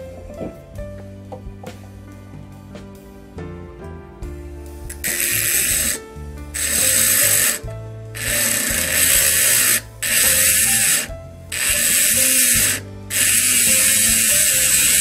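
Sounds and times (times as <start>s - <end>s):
background music: 0.0s - 15.0s
rotary grinder grinding steel: 4.9s - 15.0s.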